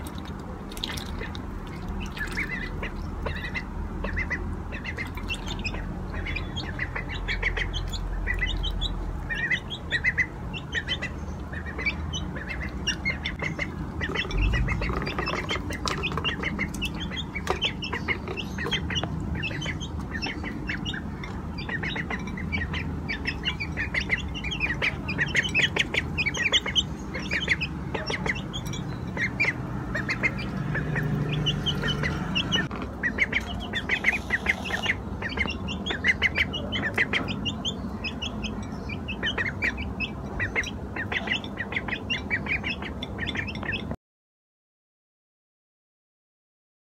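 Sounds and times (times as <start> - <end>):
young ducks peeping: 0.0 - 44.0.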